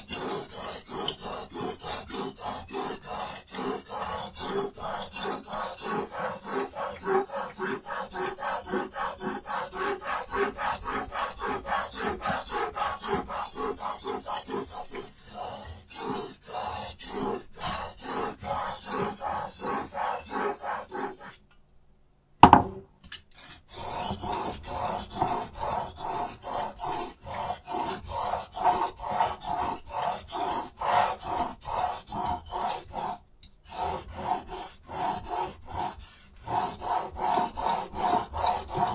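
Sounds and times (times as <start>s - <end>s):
sharpening stone scraping knife blade: 23.1s - 28.0s.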